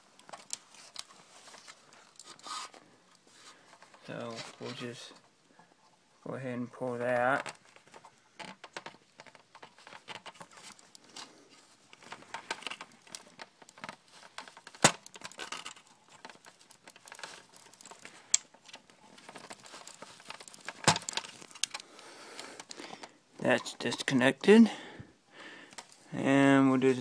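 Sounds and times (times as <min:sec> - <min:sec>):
plastic and metal parts rattling: 0:00.2 - 0:02.8, 0:03.6 - 0:05.3, 0:07.0 - 0:24.2.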